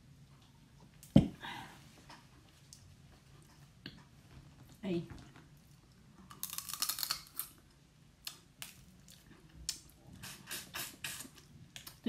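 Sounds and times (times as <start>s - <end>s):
crab shell crackling: 6.3s - 7.6s.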